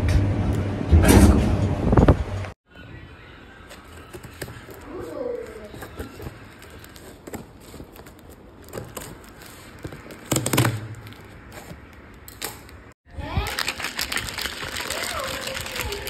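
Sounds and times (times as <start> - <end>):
cardboard box crackling: 3.7 - 12.0
knife cutting packing tape: 5.5 - 12.0.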